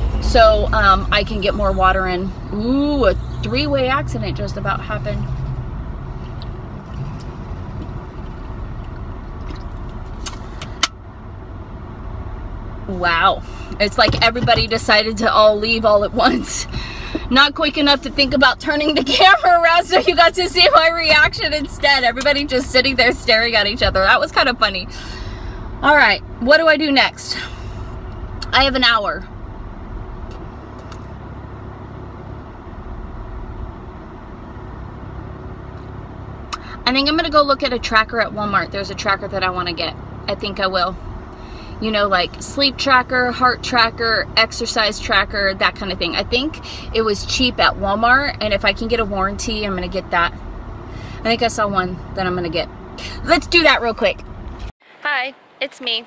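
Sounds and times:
vehicle rumble inside car cabin: 0.0s - 54.8s.

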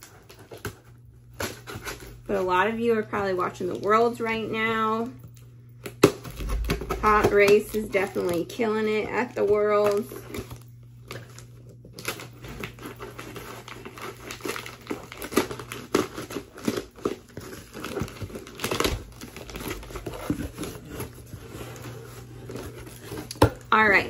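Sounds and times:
cardboard and paper rustling: 0.0s - 5.1s, 6.1s - 24.0s
packing tape slit and torn: 9.8s - 21.2s.

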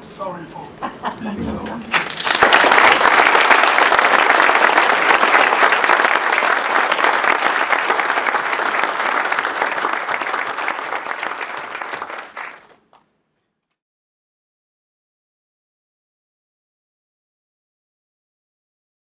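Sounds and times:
audience applauding: 1.6s - 13.0s.

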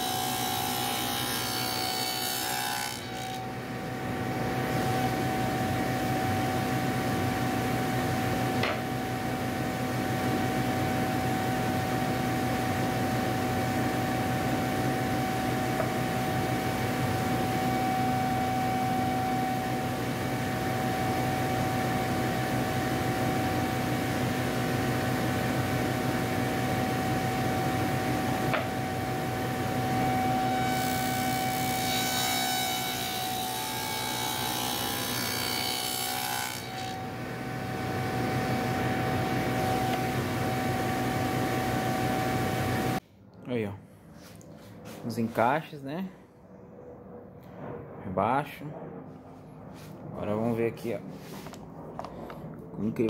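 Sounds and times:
saw cutting wood: 0.0s - 3.6s, 29.9s - 37.1s
table saw motor whine: 0.0s - 43.0s.

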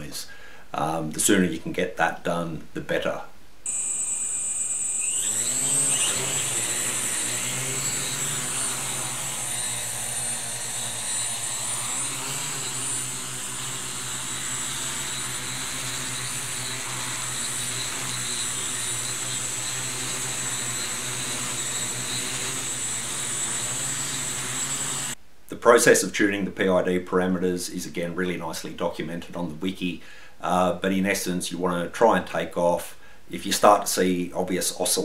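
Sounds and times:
drone propellers humming: 3.7s - 25.2s
high electric motor whine: 3.7s - 25.2s.

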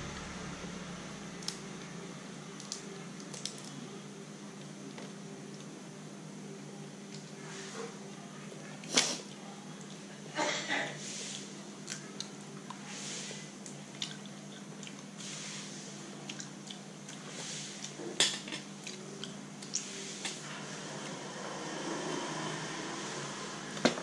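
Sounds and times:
wet chewing: 13.6s - 15.1s.

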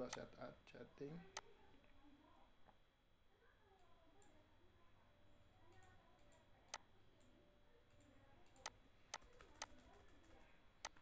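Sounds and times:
computer mouse clicks: 7.9s - 9.9s.

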